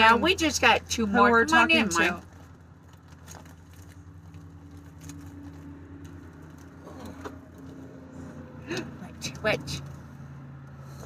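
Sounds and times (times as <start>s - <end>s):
plastic bag crinkling: 2.2s - 6.8s.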